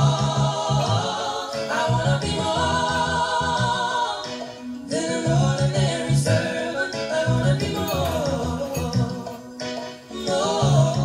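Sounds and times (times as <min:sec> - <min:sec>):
music with low bass line: 0:00.0 - 0:04.1, 0:04.8 - 0:09.5.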